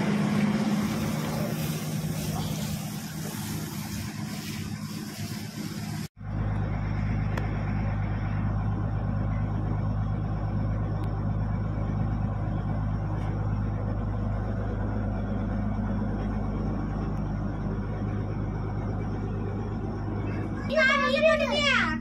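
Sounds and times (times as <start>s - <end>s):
boat engine droning: 0.0s - 22.0s.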